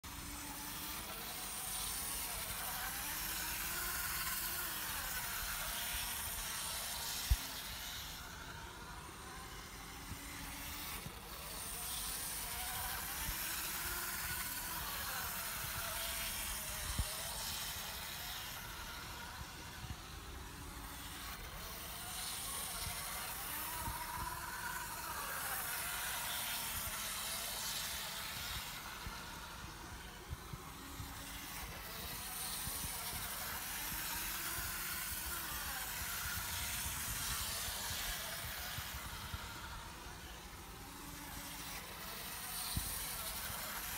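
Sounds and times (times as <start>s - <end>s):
model locomotive motor whirring: 0.0s - 43.9s
model train wheels rattling: 0.1s - 43.9s.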